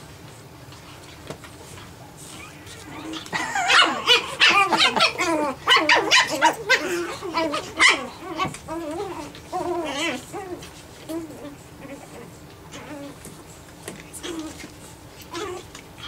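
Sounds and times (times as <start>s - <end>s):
puppies yipping and barking: 2.2s - 13.2s.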